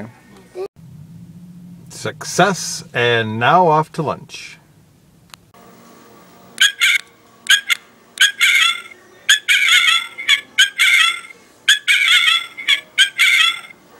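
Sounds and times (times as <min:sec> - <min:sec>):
electronic chicken clucking tune: 0:06.6 - 0:13.8.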